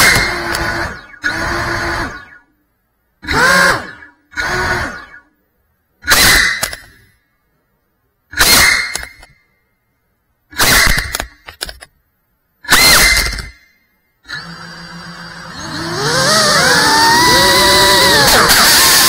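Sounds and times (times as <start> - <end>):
drone motors whining: 0.0 - 2.5, 3.2 - 5.3, 14.2 - 19.0.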